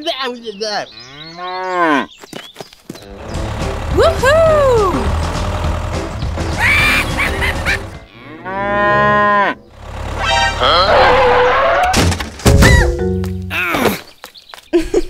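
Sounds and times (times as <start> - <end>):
cow mooing: 1.0 - 2.1, 8.0 - 11.8.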